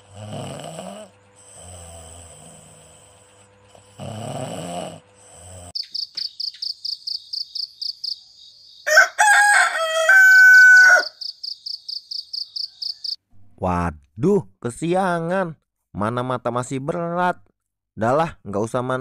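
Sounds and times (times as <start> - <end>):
person snoring: 0.0 - 5.8
high chirping: 5.8 - 8.9, 11.0 - 13.2
rooster crowing: 8.8 - 11.3.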